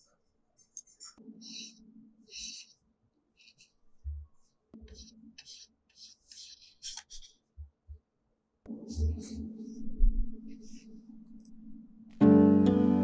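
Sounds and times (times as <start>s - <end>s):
paintbrush scratchy strokes: 0.0s - 7.5s, 8.8s - 11.2s
background music: 8.7s - 13.0s.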